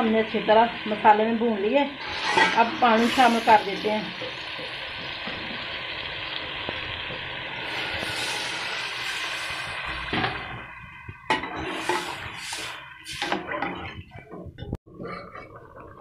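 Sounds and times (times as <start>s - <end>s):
water sizzling in hot pot: 0.0s - 13.9s.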